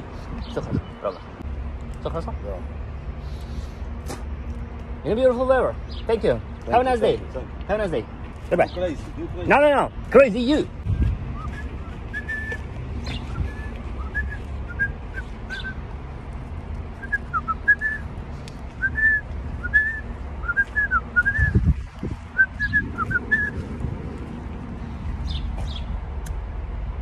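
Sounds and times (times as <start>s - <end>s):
wind buffeting microphone: 0.0s - 1.0s, 10.6s - 14.6s, 18.5s - 26.4s
man whistling a tune: 11.4s - 12.6s, 13.3s - 15.8s, 17.0s - 18.1s, 18.8s - 21.6s, 22.4s - 23.6s.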